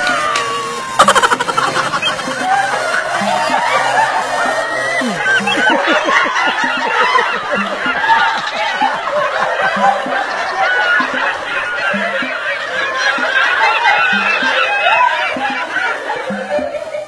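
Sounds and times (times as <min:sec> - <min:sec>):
man laughing hard: 0:00.4 - 0:12.3.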